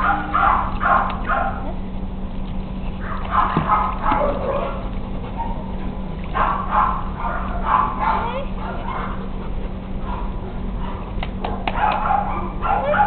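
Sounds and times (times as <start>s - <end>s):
dog barking: 0.0s - 1.7s, 3.0s - 4.8s, 6.4s - 9.2s, 10.0s - 13.0s
steady low hum: 0.0s - 13.0s.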